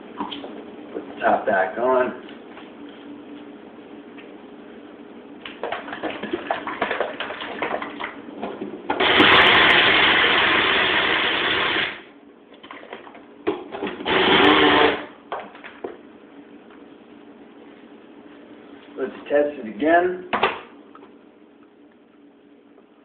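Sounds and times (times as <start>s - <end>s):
blender motor running: 9.0s - 12.1s, 14.0s - 15.1s.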